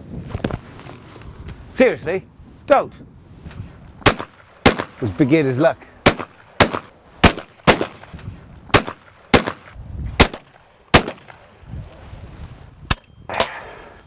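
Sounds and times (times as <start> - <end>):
shotgun bangs: 4.0 - 5.2, 6.0 - 11.4.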